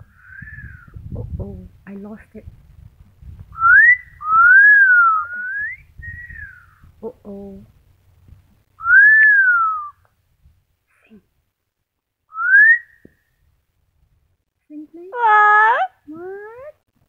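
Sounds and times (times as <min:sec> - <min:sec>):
parrot whistling a tune: 0:08.8 - 0:10.0, 0:12.3 - 0:13.0.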